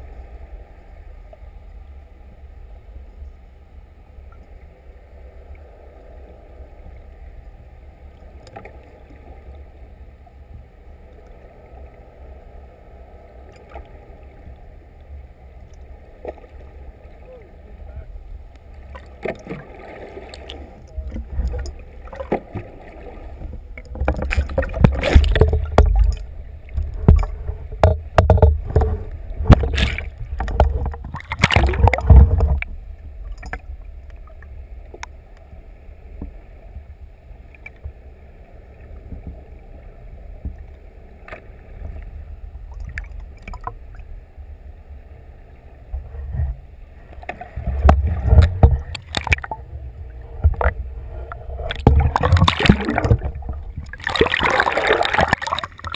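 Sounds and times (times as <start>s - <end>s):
faint steady hum: 0.0s - 55.9s
muffled underwater rumble: 0.0s - 55.9s
water buffeting camera housing: 23.8s - 32.7s, 47.8s - 49.6s, 50.4s - 55.9s.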